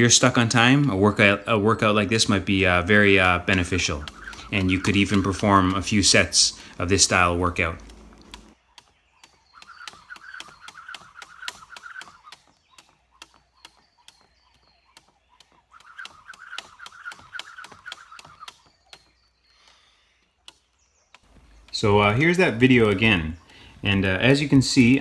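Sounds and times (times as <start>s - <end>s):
rope whirring buzz: 1.8s - 19.5s
jump rope slapping wood: 2.1s - 19.3s.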